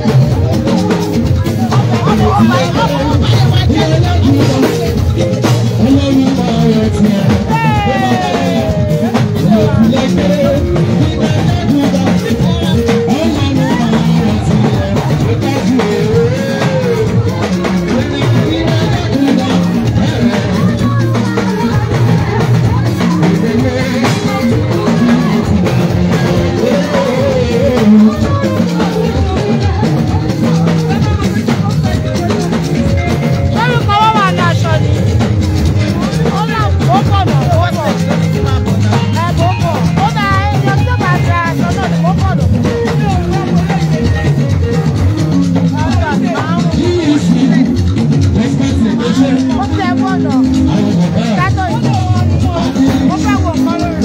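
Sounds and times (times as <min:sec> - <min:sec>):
drums keeping a steady beat: 0:00.0 - 0:54.0
woman singing into a microphone: 0:20.0 - 0:30.7.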